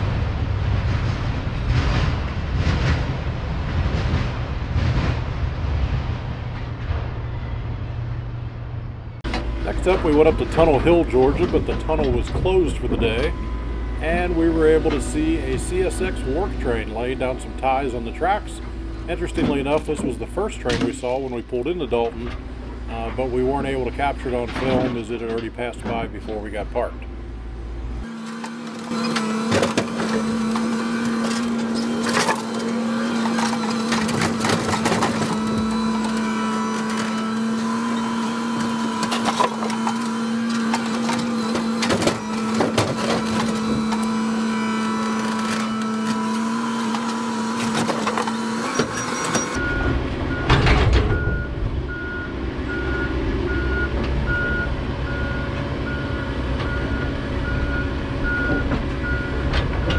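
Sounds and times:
low rumble: 0.0s - 20.5s
engine and hydraulics drone: 0.0s - 59.9s
reversing beeper: 9.4s - 21.4s, 48.4s - 59.4s
clunks of dropped wooden ties: 28.2s - 44.3s.

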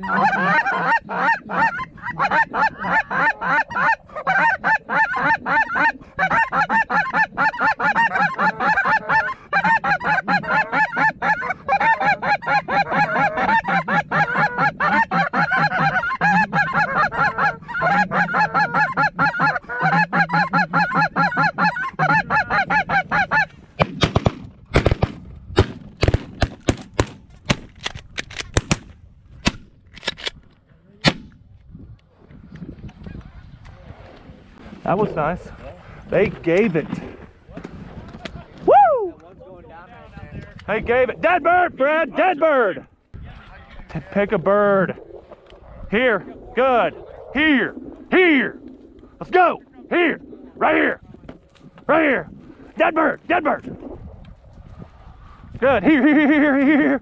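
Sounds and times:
snow geese honking: 0.0s - 23.5s
shotgun shots: 23.8s - 27.7s, 31.0s - 31.3s.

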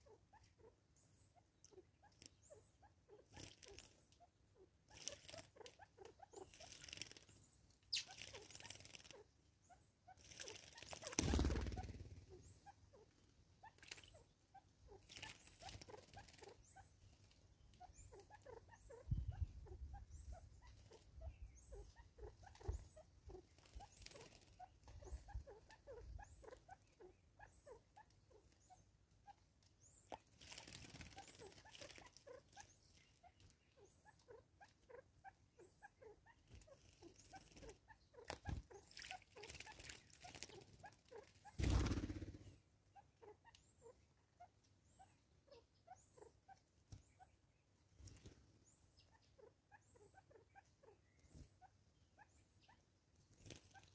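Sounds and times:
small birds chirping: 0.0s - 53.9s
birds splashing in water: 38.3s - 40.6s.

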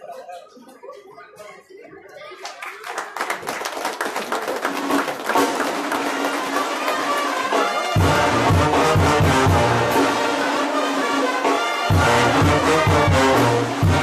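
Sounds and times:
hand clapping: 2.4s - 8.0s
brass band playing: 4.8s - 14.0s
deep bass brass notes: 7.4s - 14.0s.

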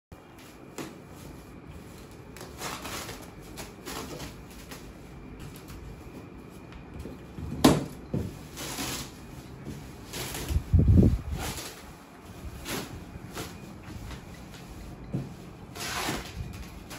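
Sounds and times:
plastic wrap crinkling and tearing: 2.0s - 5.0s.

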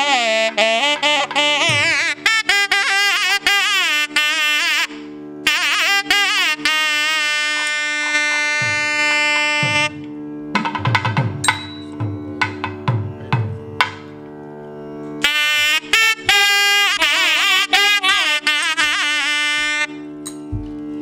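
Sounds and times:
thavil drum strokes: 0.0s - 3.4s, 8.0s - 14.1s
nadaswaram melody: 0.0s - 21.0s
steady drone: 0.0s - 21.0s.

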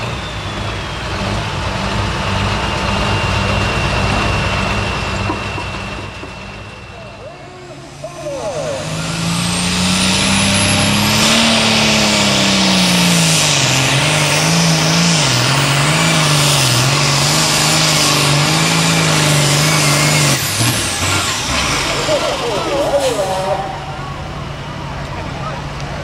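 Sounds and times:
diesel tractor engine at full throttle: 0.0s - 26.0s.

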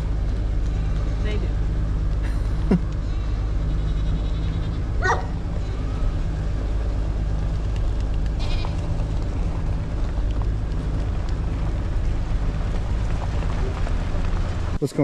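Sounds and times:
truck engine idling: 0.0s - 15.0s
goat bleating: 3.0s - 6.4s, 8.3s - 9.0s.

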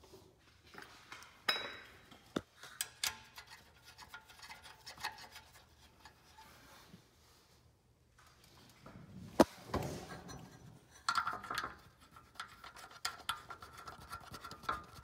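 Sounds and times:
nuts threaded onto metal studs: 1.5s - 6.5s, 10.2s - 15.0s.

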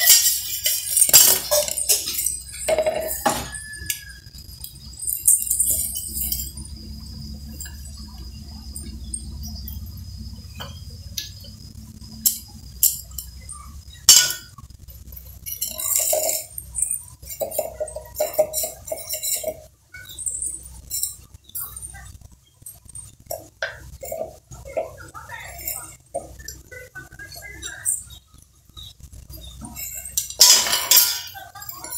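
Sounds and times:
spoon clinking against metal jar: 0.0s - 6.8s, 12.2s - 22.1s.

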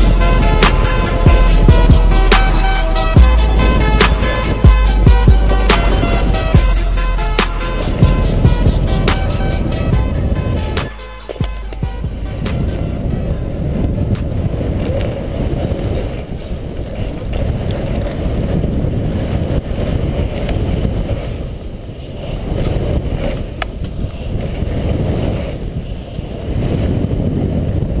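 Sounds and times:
wind buffeting microphone: 0.0s - 28.0s
bike tyres rumbling on pavement: 7.7s - 28.0s.

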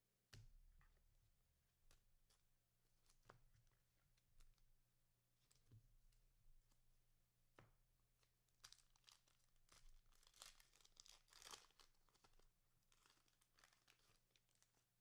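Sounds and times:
cellophane wrapper tearing: 8.6s - 14.8s.

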